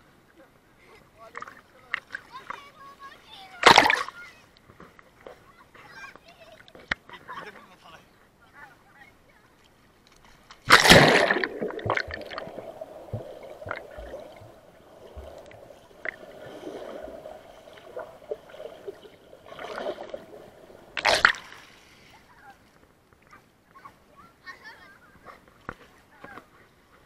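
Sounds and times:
loud splash into water: 3.6s - 4.1s, 10.7s - 14.2s, 20.9s - 21.6s
small clicks underwater: 9.6s - 10.7s.

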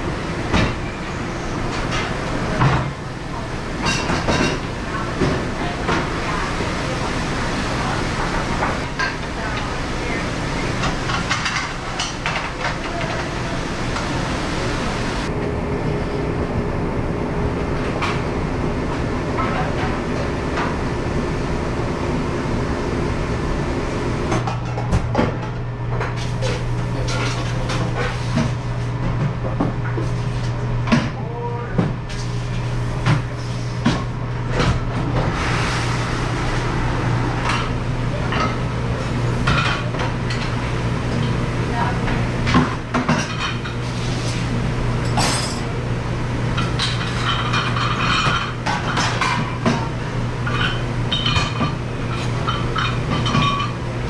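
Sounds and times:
dish machine running: 0.0s - 54.0s
dishes and racks clattering: 3.8s - 7.2s, 7.8s - 15.3s, 24.3s - 30.2s, 37.3s - 45.7s, 46.5s - 53.9s.

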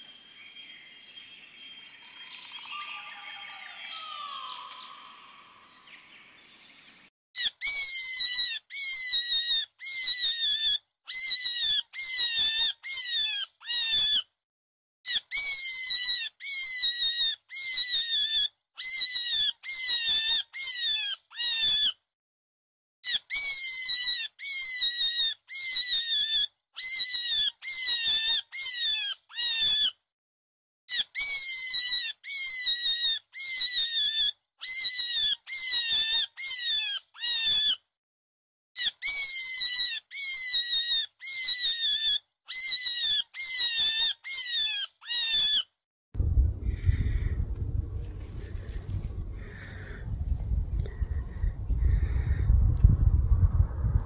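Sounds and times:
high-pitched animal squeals: 7.4s - 14.3s, 15.1s - 22.0s, 23.0s - 30.0s, 30.9s - 37.8s, 38.8s - 45.8s.

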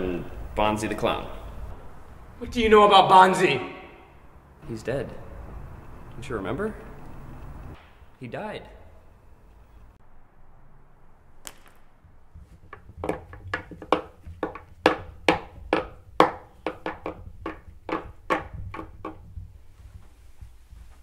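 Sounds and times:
wooden puppet feet tapping on table: 12.4s - 19.4s.

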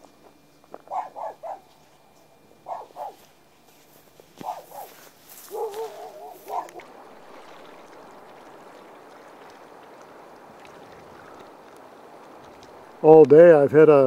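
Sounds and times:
dog barking: 0.9s - 1.7s, 2.6s - 3.3s, 4.4s - 6.9s
river water washing around kayak: 4.2s - 14.0s.

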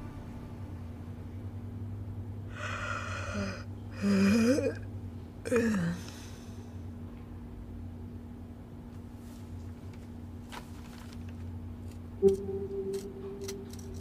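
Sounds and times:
woman sighing: 5.5s - 6.5s.

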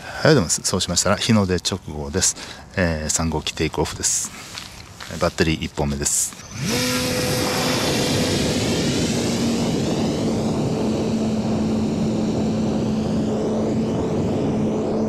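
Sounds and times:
model airplane motor whine: 6.1s - 15.0s.

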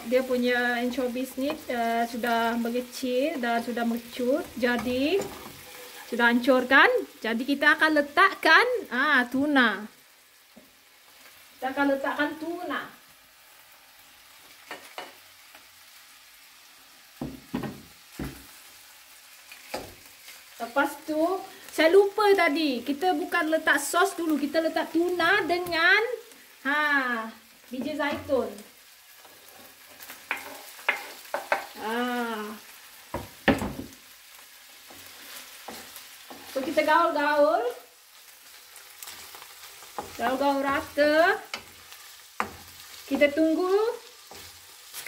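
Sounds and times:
oil sizzling in a frying pan: 0.0s - 45.0s
spoon knocking on pan: 17.2s - 18.5s, 30.3s - 31.8s, 33.1s - 34.0s.

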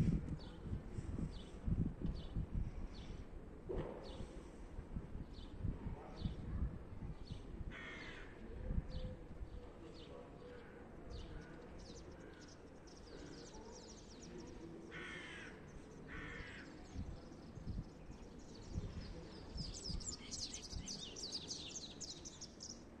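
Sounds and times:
small birds chirping: 11.2s - 23.0s.

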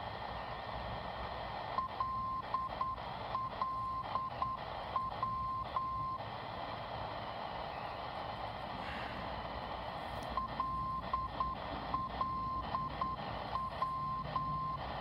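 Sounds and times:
radio static hiss: 0.0s - 15.0s
morse code tone: 10.4s - 14.9s.

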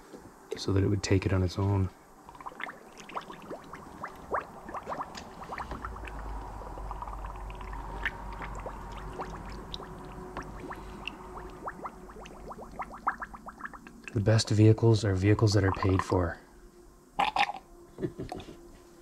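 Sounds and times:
low steady hum: 0.0s - 19.0s
coolant gurgling while poured: 2.2s - 14.7s, 15.4s - 16.2s.

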